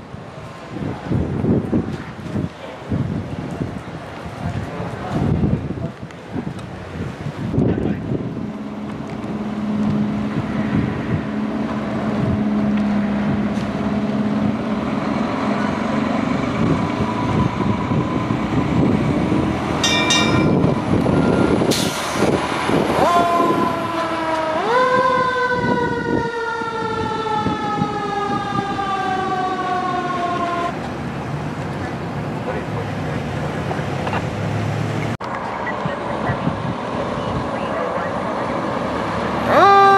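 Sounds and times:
air brakes hissing: 0:21.3 - 0:22.4.

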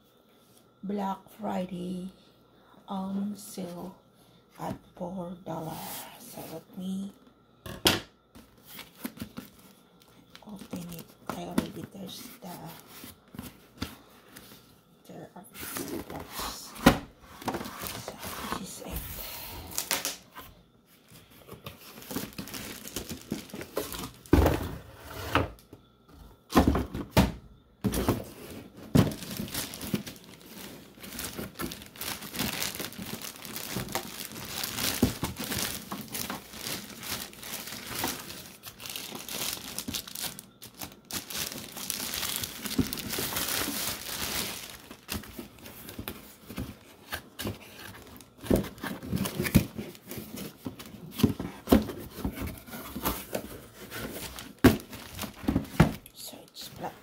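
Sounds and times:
plastic bag crinkling: 0:21.0 - 0:24.3, 0:28.6 - 0:51.2, 0:53.2 - 0:56.1.

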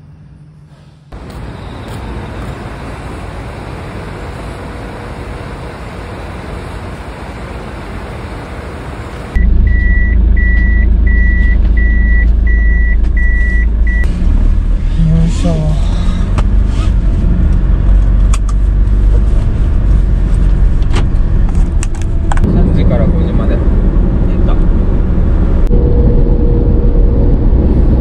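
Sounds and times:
loud low rumble: 0:09.3 - 0:28.0
short electronic beeps: 0:09.4 - 0:14.1.

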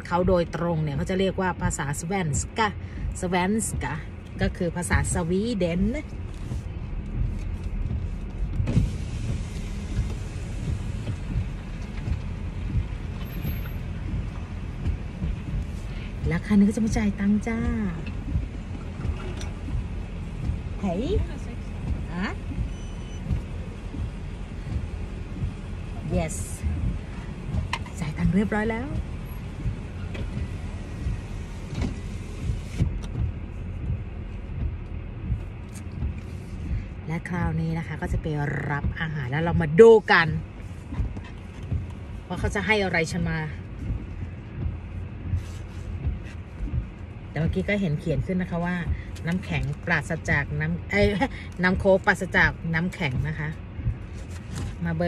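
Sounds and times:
car engine and road rumble: 0:00.0 - 0:55.0.

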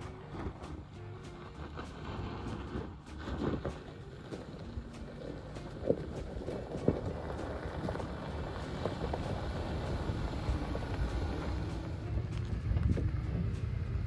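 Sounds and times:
engine and tyre rumble: 0:00.0 - 0:14.0.

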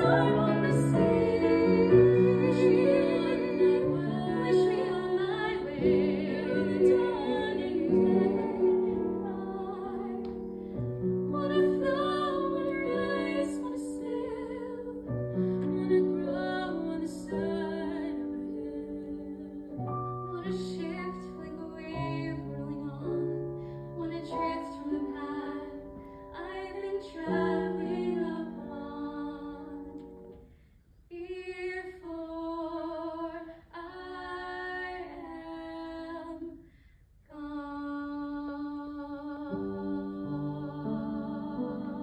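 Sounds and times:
woman singing with vibrato: 0:00.0 - 0:10.2
piano chords: 0:00.0 - 0:30.4, 0:39.3 - 0:42.0.

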